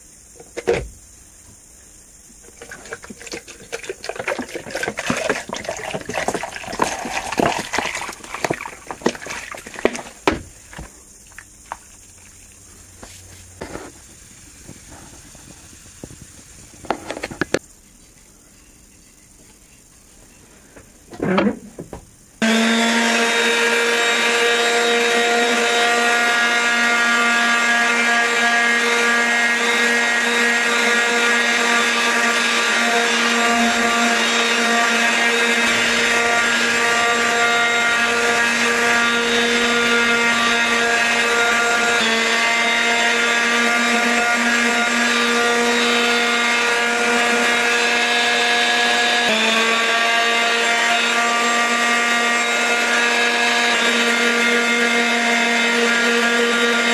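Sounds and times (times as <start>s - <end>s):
electric sander sanding wood: 22.4s - 56.9s.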